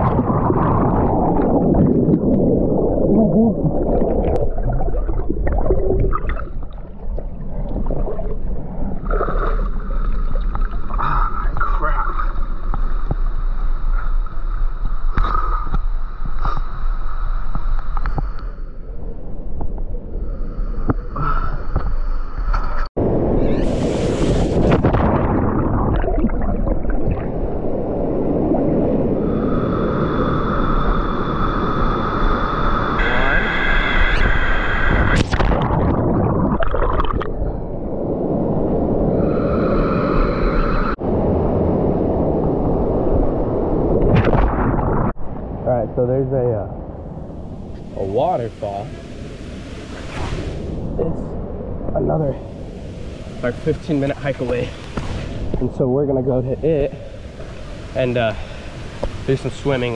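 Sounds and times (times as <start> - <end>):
muffled underwater rush: 0.0 - 17.4, 23.0 - 59.9
loud splash of water: 23.6 - 27.4.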